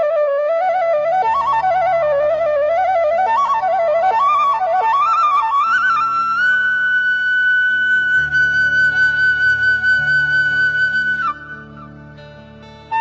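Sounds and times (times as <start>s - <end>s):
flute melody: 0.0s - 13.0s.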